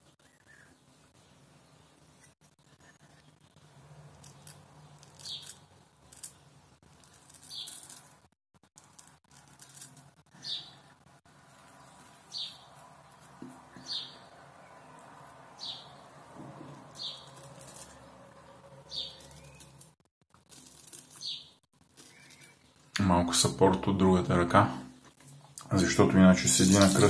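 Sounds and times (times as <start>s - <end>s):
razor scraping stubble: 26.4s - 27.0s.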